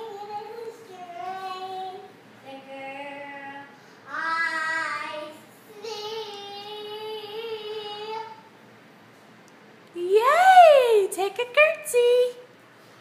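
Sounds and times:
girl singing unaccompanied: 0:00.0 - 0:08.5.

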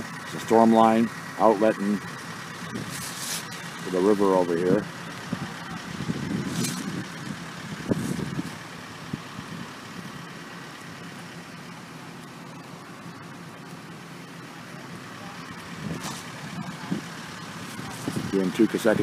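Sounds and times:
engine idling: 0:00.0 - 0:19.0
brief rustling: 0:02.8 - 0:03.7, 0:16.0 - 0:16.4.

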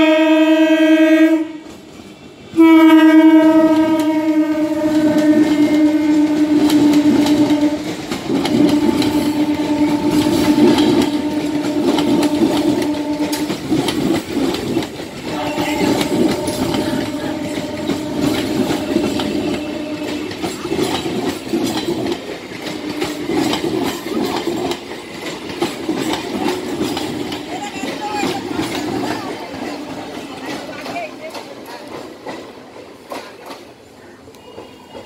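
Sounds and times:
train horn blasts: 0:00.0 - 0:01.8, 0:02.6 - 0:13.9, 0:15.2 - 0:21.0, 0:22.6 - 0:23.6, 0:34.3 - 0:35.0
train passing at speed: 0:00.0 - 0:35.0
wheels clattering over rail joints: 0:03.7 - 0:35.0.

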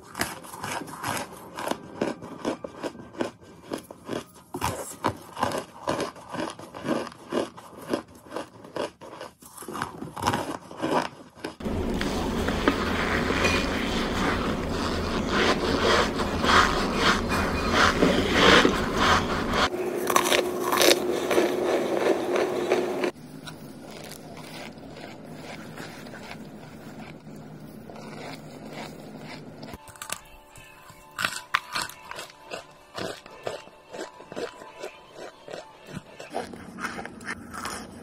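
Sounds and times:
chalk crunching and crackling: 0:00.0 - 0:38.0
low hum: 0:11.6 - 0:29.8.

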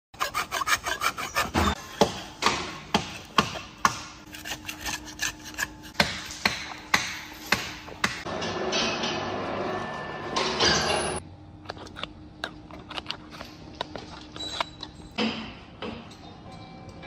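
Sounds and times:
hand scraper scraping grease off metal: 0:00.2 - 0:02.0.

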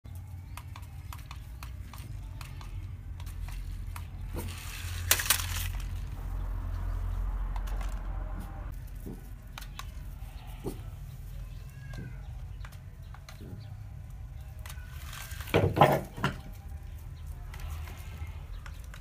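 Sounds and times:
plastic clatter: 0:00.6 - 0:06.1, 0:14.6 - 0:16.6
toy truck electric motor whirring: 0:02.0 - 0:06.2, 0:14.6 - 0:15.6.

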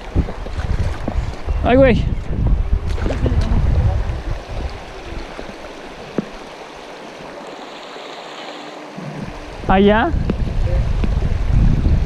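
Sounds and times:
low rumble: 0:00.5 - 0:04.9
river rippling over stones: 0:02.6 - 0:10.5.

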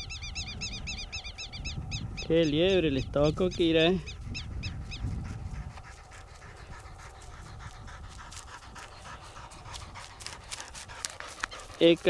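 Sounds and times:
dog panting: 0:03.6 - 0:12.0.

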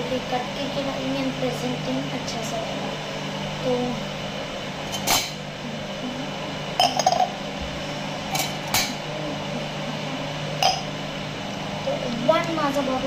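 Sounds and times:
metal tumblers clinking: 0:06.8 - 0:07.4.

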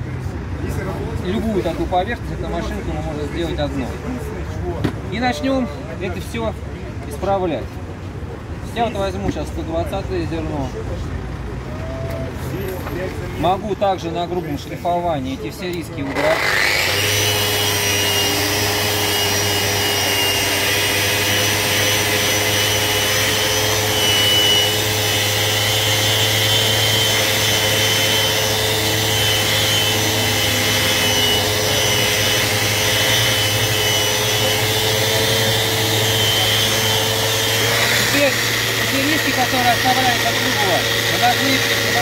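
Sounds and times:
sander sanding plastic: 0:16.1 - 0:42.0.

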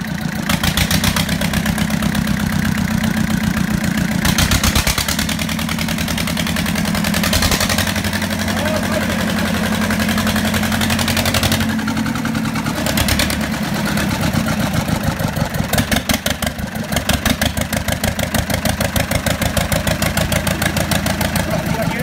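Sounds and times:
diesel tractor engine running: 0:00.0 - 0:22.0.

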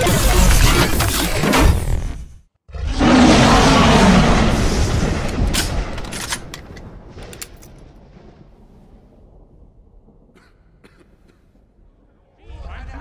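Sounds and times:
dinosaur roar with echo: 0:02.7 - 0:04.8.

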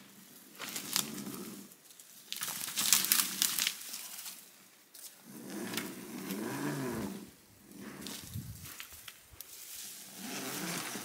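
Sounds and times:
twigs cracking underfoot: 0:00.6 - 0:06.4, 0:08.0 - 0:09.6.

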